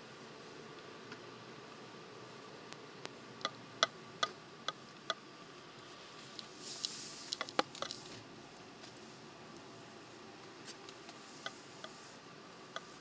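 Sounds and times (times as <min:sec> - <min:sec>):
faint steady hiss in car: 0:00.0 - 0:13.0
short high hiss: 0:05.9 - 0:08.2
light sharp ticks and clicks: 0:12.7 - 0:13.0.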